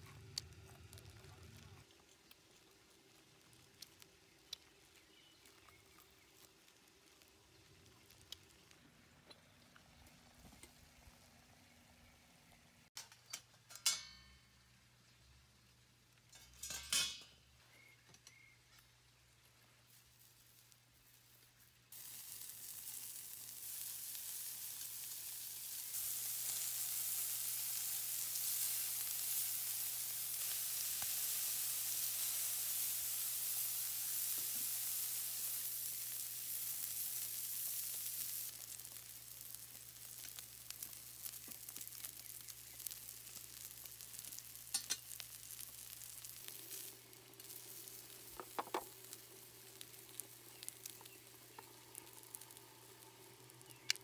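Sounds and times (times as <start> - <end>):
meat sizzling on a grill plate: 19.8 - 54.0.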